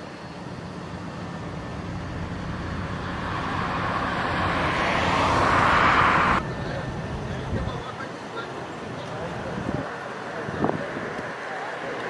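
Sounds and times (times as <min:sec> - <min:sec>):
vehicle tyres and engine approaching: 0:00.0 - 0:12.0.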